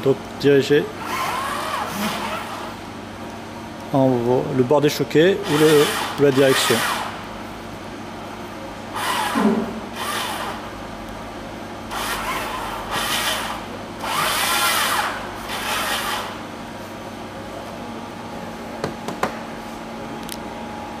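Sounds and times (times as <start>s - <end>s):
electric motors whining: 1.0s - 2.8s, 5.4s - 7.3s, 8.9s - 10.8s, 11.9s - 16.4s.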